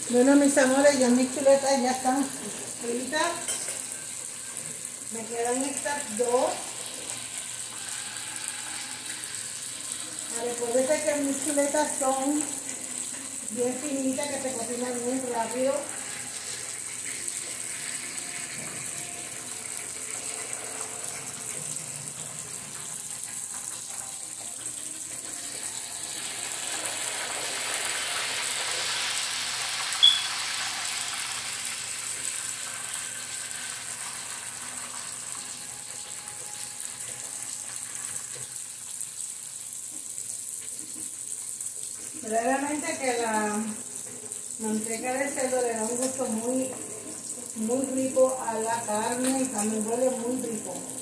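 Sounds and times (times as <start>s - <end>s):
meat sizzling in a pan: 0.0s - 51.0s.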